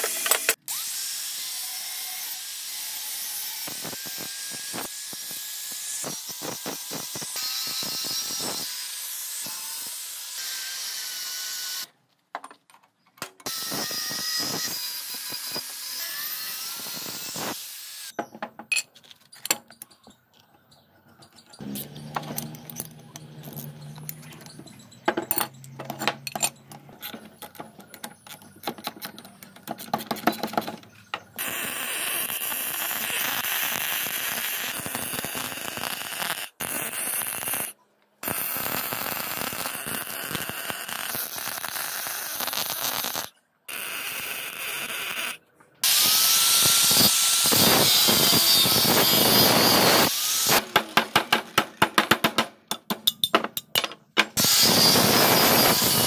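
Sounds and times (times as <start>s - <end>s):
angle grinder grinding steel: 0.0s - 11.9s, 13.4s - 18.2s, 21.5s - 25.1s, 38.2s - 51.1s, 54.3s - 56.0s
welding arc crackling and hissing: 3.0s - 10.6s, 13.5s - 18.1s, 31.4s - 50.7s, 54.4s - 56.0s
metal clinks of bolts and spanner: 18.2s - 31.3s, 52.7s - 54.4s.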